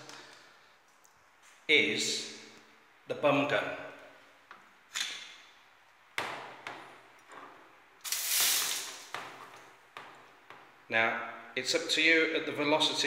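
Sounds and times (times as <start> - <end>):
bidet sprayer spraying water: 8.0 - 9.0.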